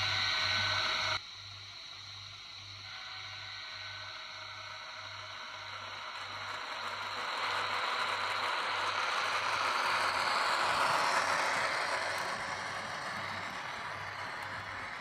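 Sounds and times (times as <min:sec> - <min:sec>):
model train wheels rattling: 0:05.4 - 0:15.0.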